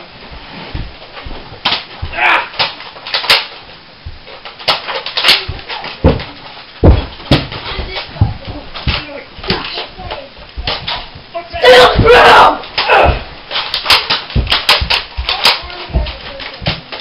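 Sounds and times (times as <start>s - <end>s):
heavy thuds on carpeted floor: 0.3s - 2.2s, 4.0s - 4.3s, 5.4s - 13.5s, 14.3s - 16.9s
toy dart blasters clicking: 2.5s - 3.6s, 4.6s - 6.0s, 13.5s - 17.0s.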